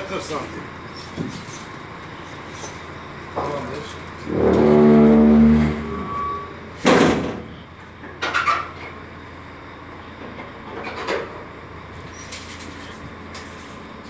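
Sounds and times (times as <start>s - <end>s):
low steady hum: 2.0s - 8.2s
metal bangs in steel trailer: 4.2s - 7.7s.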